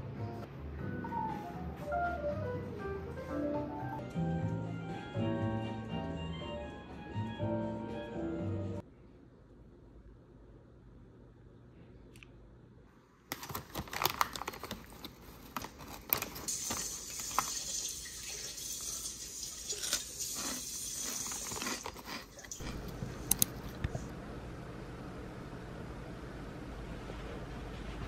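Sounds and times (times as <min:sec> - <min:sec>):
plastic snack bag crinkling: 0:13.3 - 0:17.8, 0:19.7 - 0:23.6.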